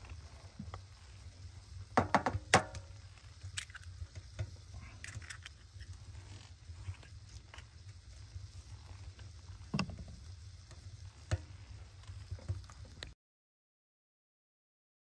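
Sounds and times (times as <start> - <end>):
egg knocking on metal pan: 2.0 - 2.9
egg cracking open: 2.2 - 7.9.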